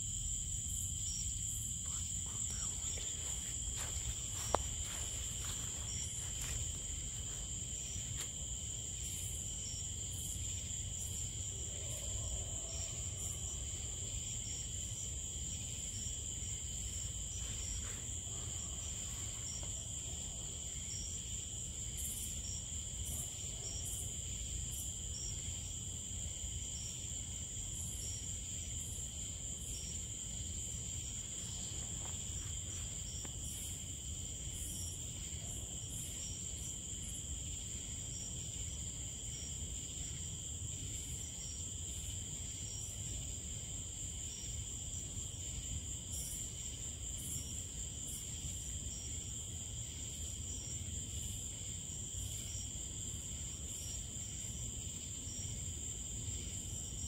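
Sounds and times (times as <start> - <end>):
crickets and night insects chirping: 0.0 - 57.0.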